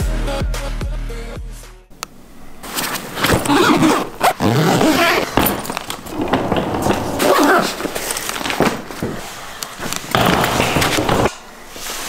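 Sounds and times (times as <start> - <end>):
suitcase rustling and clattering: 2.6 - 12.0.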